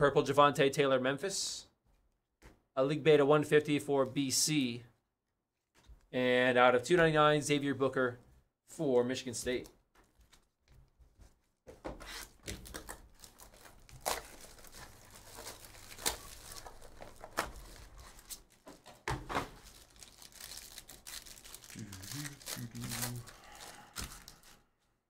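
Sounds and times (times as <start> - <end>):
plastic shrink wrap tearing: 12.2 - 18.9, 19.5 - 24.6.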